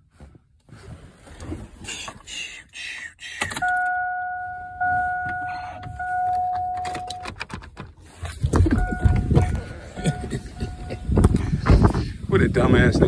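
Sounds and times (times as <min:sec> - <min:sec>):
car electronic warning chime: 0:03.6 - 0:07.4, 0:08.6 - 0:11.4
phone handling rustling and knocking: 0:04.8 - 0:10.3.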